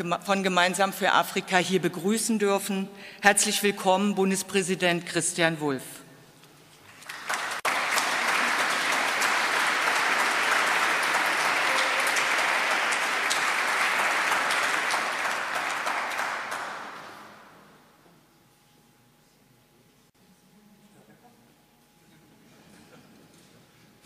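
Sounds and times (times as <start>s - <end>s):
audience applauding: 6.9s - 17.5s.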